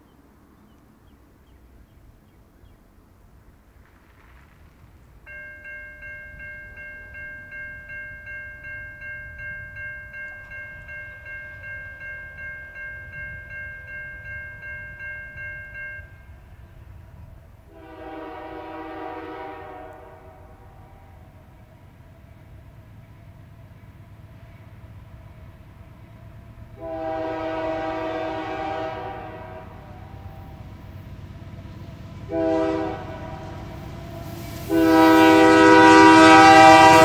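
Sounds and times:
diesel locomotives rumbling: 0.0s - 37.0s
crossing warning bell ringing: 5.2s - 16.9s, 17.8s - 21.6s, 26.8s - 37.0s
locomotive air horn: 17.7s - 21.1s, 26.8s - 30.6s, 32.3s - 37.0s.

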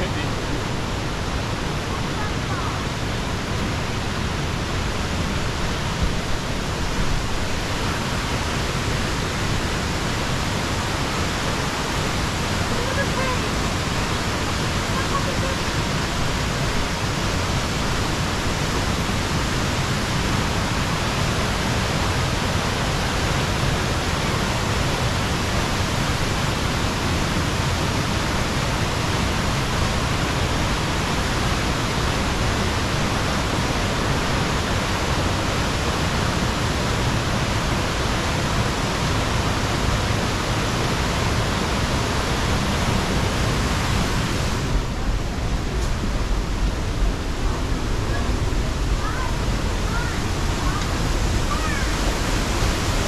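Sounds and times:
creek and waterfalls rushing: 0.0s - 53.0s.

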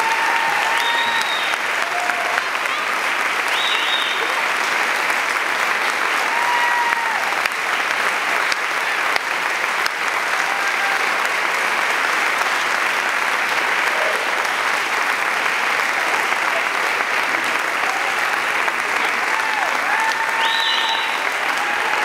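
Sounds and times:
cheers and whoops: 0.0s - 4.5s, 6.1s - 7.6s, 10.2s - 11.3s, 17.6s - 22.0s
audience applauding: 0.0s - 22.0s.

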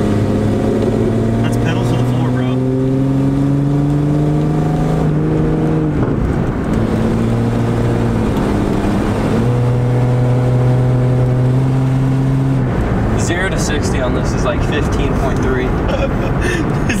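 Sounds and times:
car engine accelerating hard: 0.0s - 17.0s.

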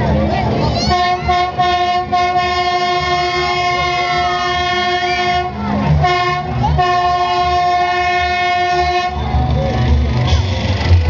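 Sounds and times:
crowd voices: 0.0s - 11.0s
horn sounding a steady note: 0.9s - 9.6s.

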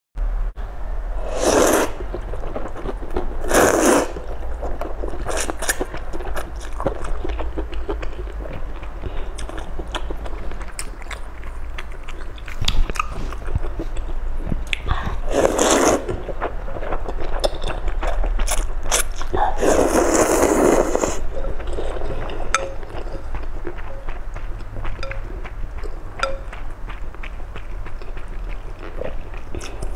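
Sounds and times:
noodles slurping: 1.2s - 8.3s, 14.7s - 23.5s
wet chewing: 1.6s - 29.9s.

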